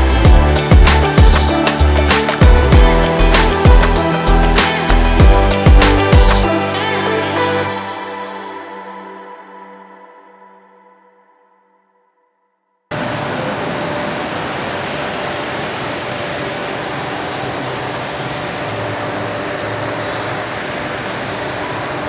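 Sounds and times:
workshop machinery hiss and hum: 12.9s - 22.0s.

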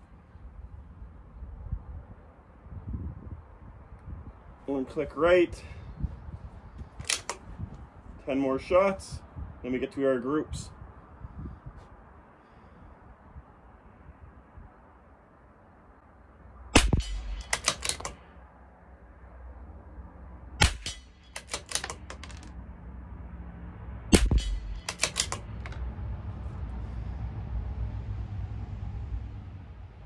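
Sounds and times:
rifle bolt metallic clicks: 6.9s - 7.5s, 16.8s - 18.3s, 20.6s - 22.5s, 24.2s - 25.9s
rifle shots: 7.0s - 7.4s, 16.7s - 18.2s, 20.6s - 22.5s, 24.1s - 25.6s.

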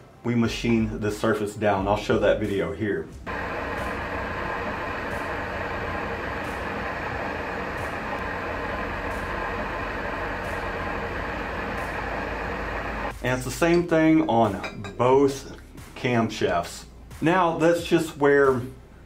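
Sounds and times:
metal lathe droning: 3.3s - 13.1s.

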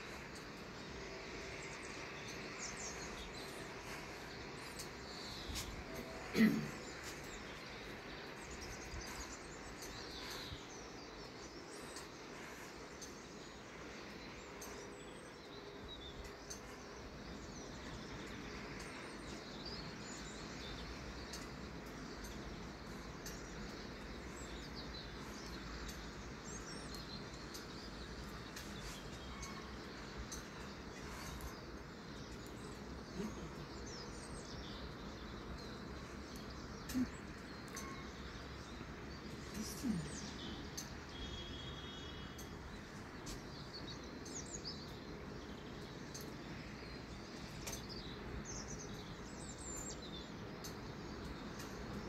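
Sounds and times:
small birds chirping: 0.0s - 52.0s.

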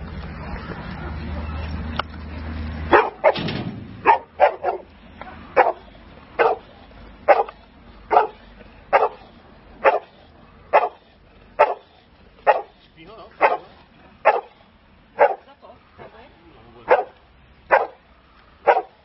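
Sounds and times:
dog barking: 2.9s - 3.4s, 4.0s - 4.9s, 5.5s - 6.7s, 7.3s - 9.2s, 9.8s - 10.1s, 10.7s - 11.0s, 11.6s - 12.8s, 13.4s - 14.6s, 15.2s - 15.5s, 16.9s - 18.0s, 18.6s - 19.0s.

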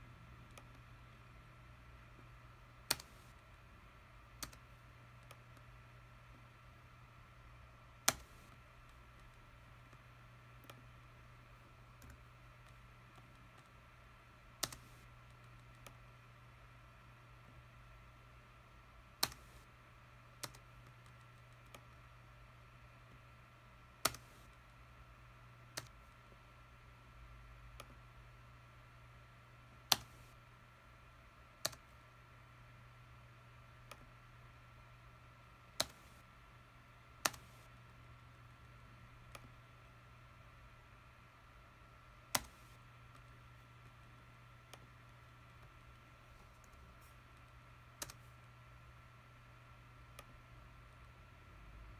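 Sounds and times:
faint steady hum: 0.0s - 51.9s
mouse and keyboard clicks: 8.0s - 9.4s, 14.6s - 16.0s, 19.2s - 19.7s, 24.0s - 24.6s, 29.9s - 30.4s, 31.6s - 31.8s, 35.8s - 36.2s, 37.2s - 37.7s, 42.3s - 48.5s, 50.1s - 50.4s.

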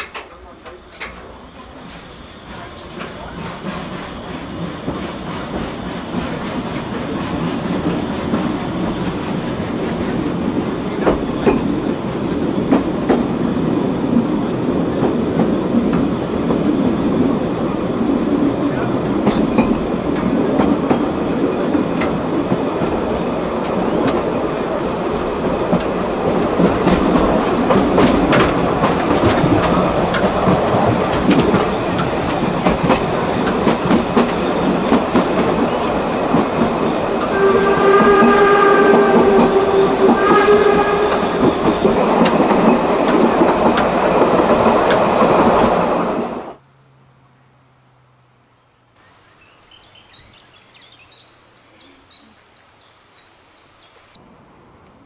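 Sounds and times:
steam train wheels clicking: 0.0s - 46.6s
steam locomotive whistle: 37.1s - 42.3s.

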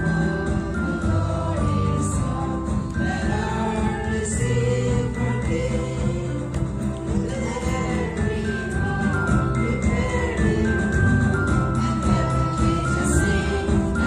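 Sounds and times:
acoustic guitar: 0.0s - 14.0s
group of children singing a hymn: 7.2s - 11.2s, 11.8s - 14.0s.

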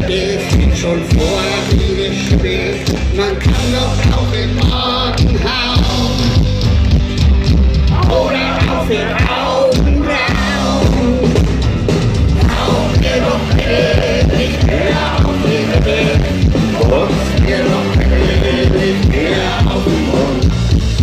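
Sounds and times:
man singing: 0.0s - 6.8s, 7.9s - 11.5s, 12.4s - 20.6s
acoustic guitar: 0.0s - 21.0s
bass guitar: 0.0s - 21.0s
drums: 0.0s - 21.0s.

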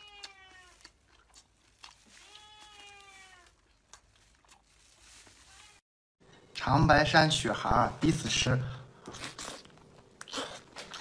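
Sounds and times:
chewing mouth sounds: 0.2s - 2.1s, 9.0s - 11.0s.

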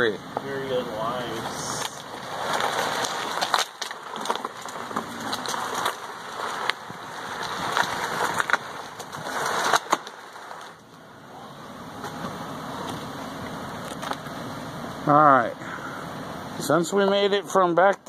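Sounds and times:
plastic trash can scraping on asphalt: 1.0s - 11.0s.

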